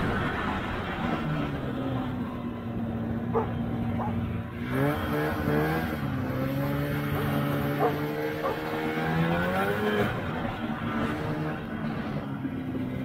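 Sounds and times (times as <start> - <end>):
snowmobile engine running: 0.0 - 13.0.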